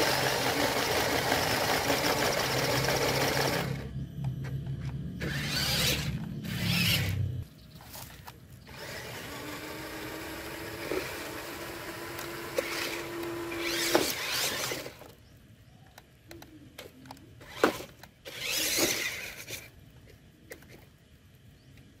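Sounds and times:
toy truck motor whirring: 0:00.0 - 0:03.9, 0:05.2 - 0:07.4, 0:08.6 - 0:15.2, 0:16.8 - 0:21.0.

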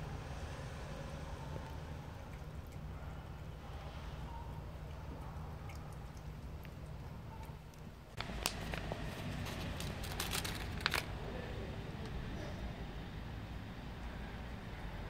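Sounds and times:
cat crunching kibble: 0:01.6 - 0:03.6, 0:04.5 - 0:11.6.

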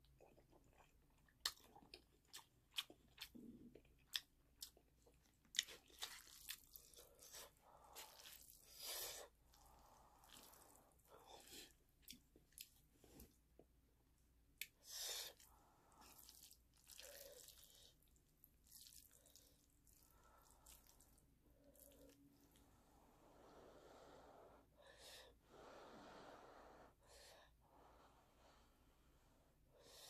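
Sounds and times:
wet chewing of noodles: 0:00.0 - 0:13.4, 0:14.6 - 0:22.8.

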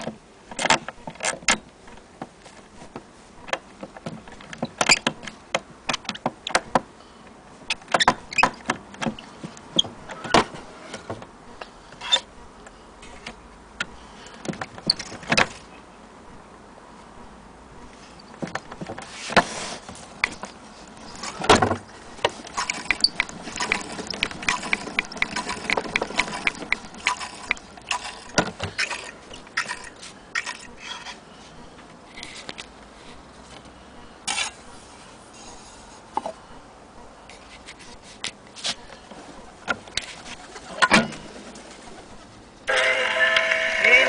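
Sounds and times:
crank winding clicks and rattles: 0:22.5 - 0:30.7.

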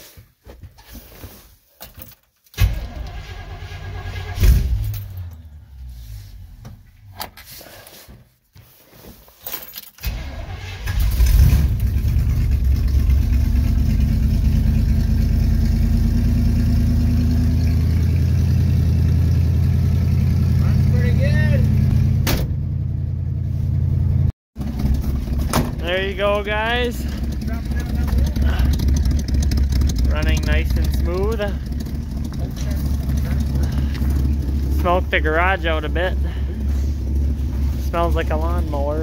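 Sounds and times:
engine cranking and starting: 0:02.6 - 0:05.9, 0:10.0 - 0:15.0, 0:24.6 - 0:26.2, 0:26.8 - 0:38.6
engine revving: 0:10.4 - 0:23.3, 0:24.6 - 0:39.0
engine idling: 0:10.5 - 0:22.2, 0:22.8 - 0:39.0.

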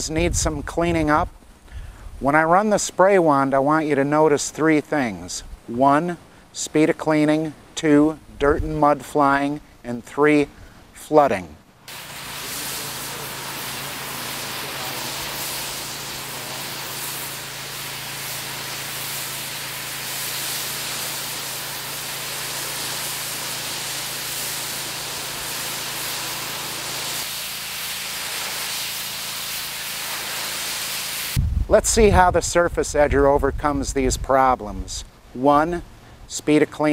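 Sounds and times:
pressure washer spray hiss: 0:11.8 - 0:31.4.

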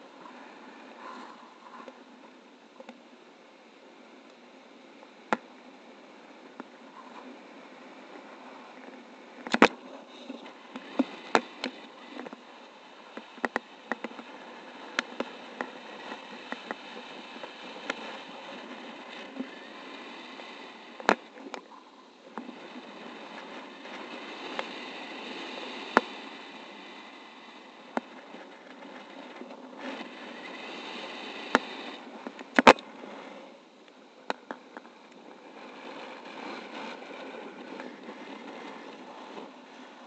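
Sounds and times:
rush of air: 0:06.8 - 0:34.2.

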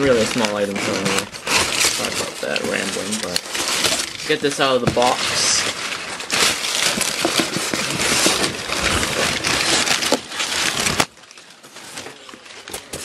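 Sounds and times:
cardboard rustling and crackling: 0:00.0 - 0:13.0.

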